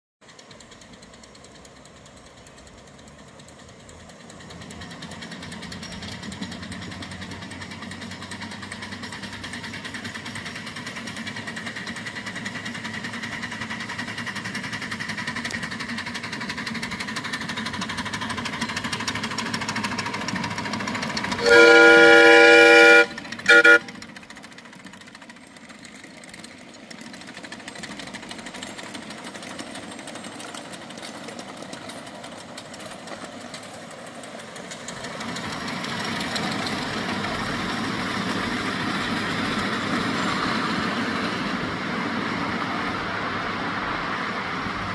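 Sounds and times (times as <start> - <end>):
steam locomotive chuffing: 0.2 - 44.9
steam whistle blast: 21.3 - 24.0.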